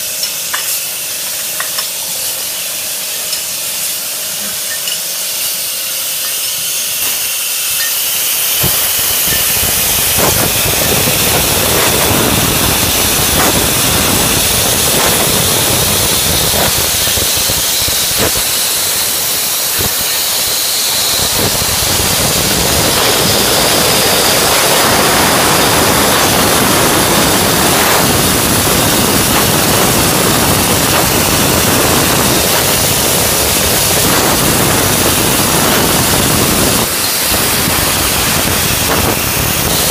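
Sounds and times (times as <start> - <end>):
bottling machine hissing: 0.0 - 39.9
low machine rumble: 8.5 - 39.9.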